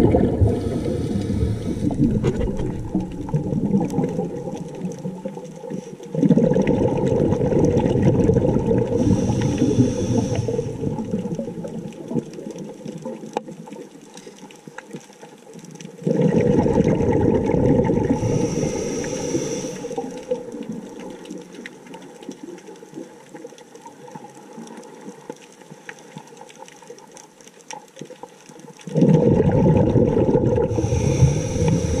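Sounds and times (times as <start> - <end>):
exhaled bubbles underwater: 0.0 - 14.1, 15.8 - 25.2, 28.8 - 32.0
high hiss: 0.5 - 2.2, 9.0 - 10.9, 18.2 - 20.4, 30.7 - 32.0.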